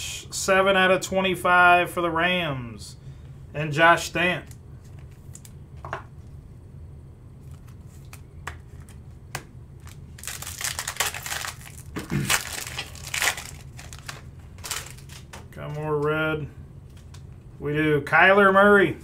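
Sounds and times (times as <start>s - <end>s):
foil wrapper crinkling and tearing: 9.8s - 15.4s.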